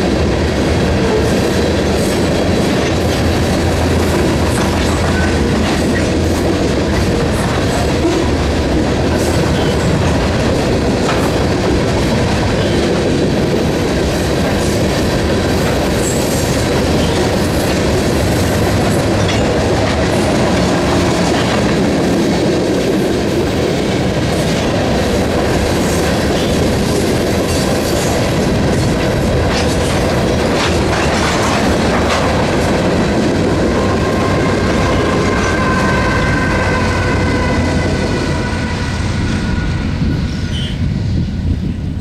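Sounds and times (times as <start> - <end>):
train rumble: 0.0 - 42.0
train wheels clickety-clack: 0.0 - 42.0.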